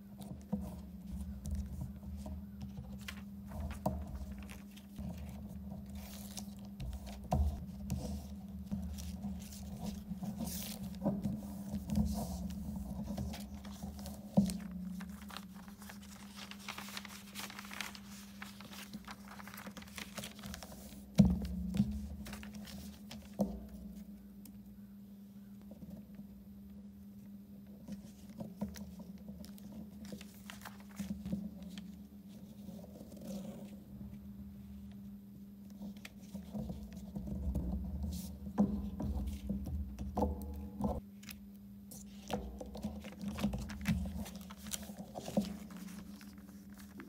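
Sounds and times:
paper rustling and crinkling: 0:00.2 - 0:24.0, 0:27.8 - 0:33.8, 0:40.2 - 0:47.0.

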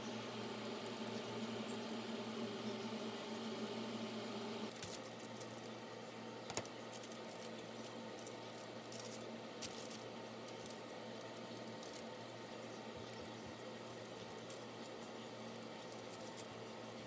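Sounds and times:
appliance hum: 0:00.0 - 0:17.0
aluminium foil crinkling: 0:04.7 - 0:05.8, 0:06.4 - 0:12.4, 0:13.1 - 0:16.8.

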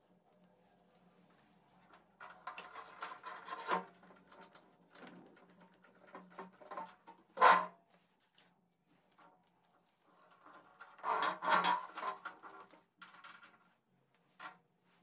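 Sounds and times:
rubber hose scraping concrete: 0:10.3 - 0:12.7.

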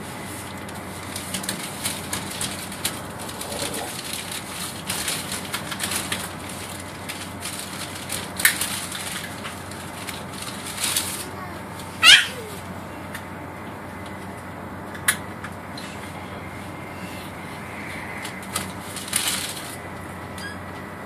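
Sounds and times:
train carriage running noise: 0:00.0 - 0:21.0
crackling and rustling clicks: 0:00.4 - 0:11.9, 0:18.2 - 0:20.1.

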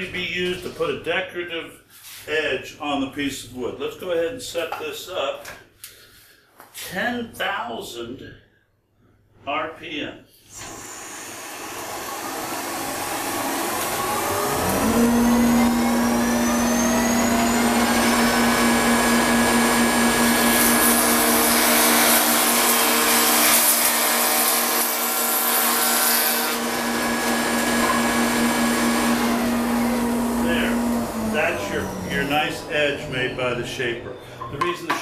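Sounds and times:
shaper cutter cutting wood: 0:10.5 - 0:35.0
motor whine spinning up: 0:11.5 - 0:20.4, 0:26.8 - 0:34.2.

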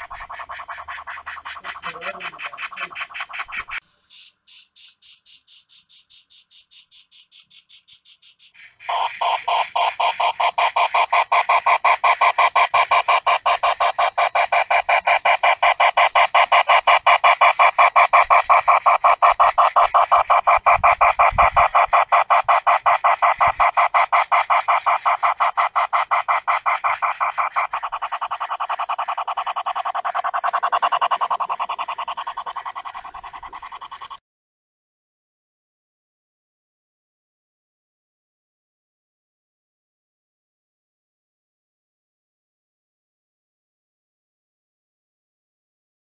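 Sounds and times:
model steam locomotive chuffing: 0:00.0 - 0:03.8, 0:08.6 - 0:34.2.

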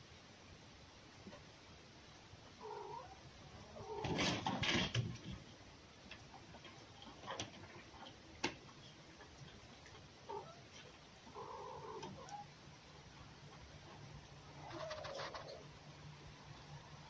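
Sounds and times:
faint animal calls: 0:02.5 - 0:04.4, 0:08.8 - 0:12.6, 0:13.6 - 0:15.9.

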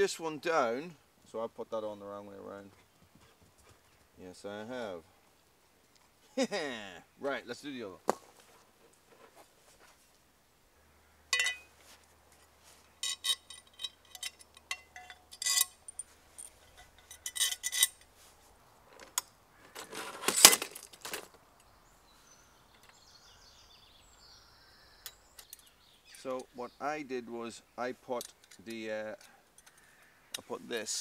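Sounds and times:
metal rattle: 0:11.3 - 0:11.7, 0:13.0 - 0:18.1
metal parts clinking: 0:11.4 - 0:11.7, 0:13.0 - 0:18.1.

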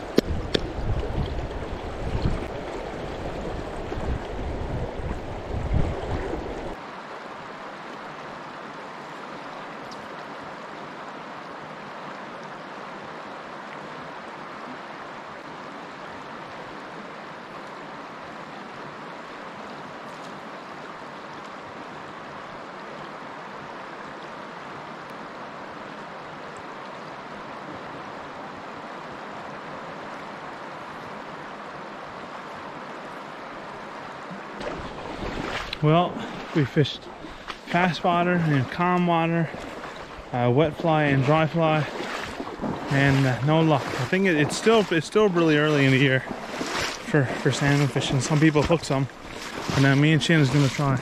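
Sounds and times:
wind buffeting the microphone: 0:00.0 - 0:06.8
fast-flowing river rushing: 0:00.0 - 0:51.0.

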